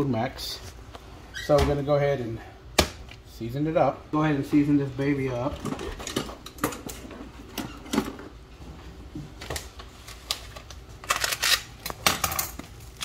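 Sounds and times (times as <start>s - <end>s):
knife cutting plastic wrapping: 10.2s - 12.2s.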